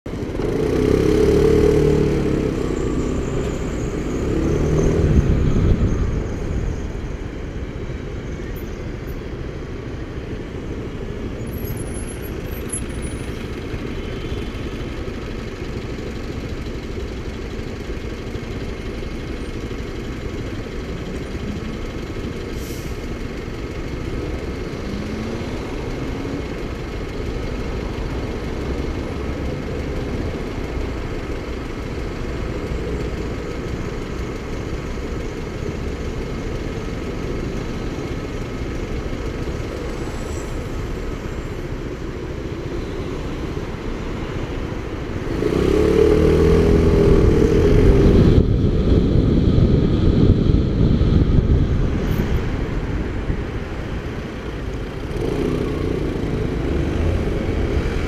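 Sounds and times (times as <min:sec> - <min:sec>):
passing traffic: 0:00.0 - 0:58.0
motorcycle engine idling: 0:11.5 - 0:22.5.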